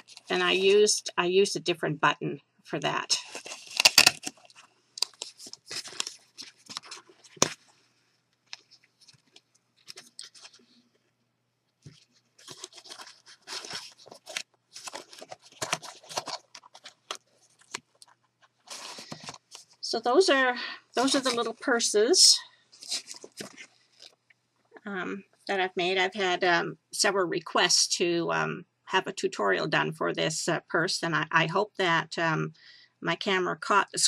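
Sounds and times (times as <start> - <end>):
paper rustling and rasping: 3.2 - 7.8, 8.5 - 11.0, 11.8 - 19.8, 22.8 - 24.2.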